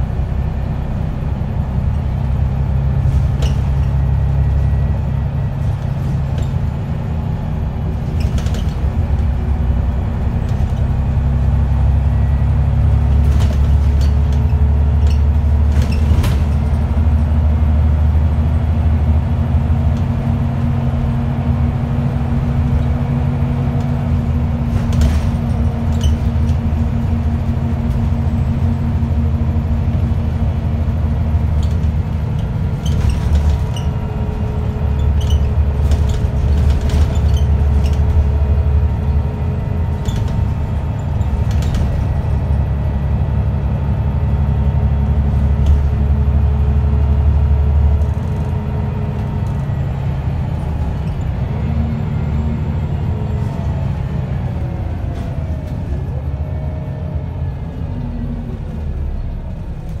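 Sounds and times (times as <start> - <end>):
bus diesel engine drone: 0.0 - 60.0
road noise: 0.0 - 60.0
short rattles: 31.6 - 38.5.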